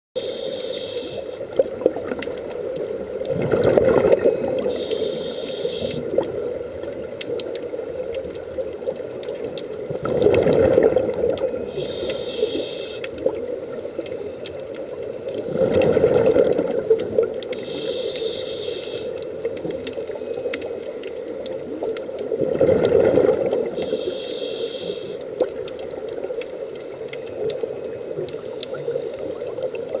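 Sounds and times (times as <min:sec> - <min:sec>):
regulator hiss: 0:00.2 - 0:01.4, 0:04.2 - 0:06.1, 0:11.7 - 0:13.2, 0:17.6 - 0:19.2, 0:23.8 - 0:25.3
underwater wash: 0:00.2 - 0:30.0
exhaled bubbles underwater: 0:00.8 - 0:18.3, 0:18.9 - 0:30.0.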